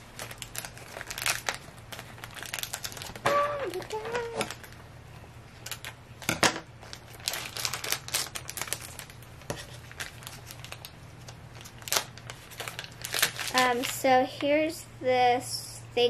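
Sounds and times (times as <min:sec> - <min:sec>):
plastic crinkling and tearing: 0:00.0 - 0:04.8, 0:05.6 - 0:14.2
scissors snipping plastic bag: 0:11.7 - 0:14.0.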